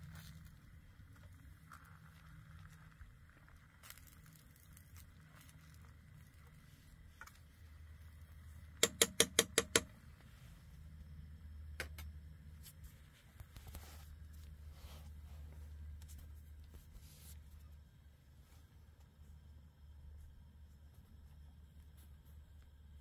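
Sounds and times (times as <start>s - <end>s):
steady low rumble: 0.0s - 8.8s, 9.8s - 23.0s.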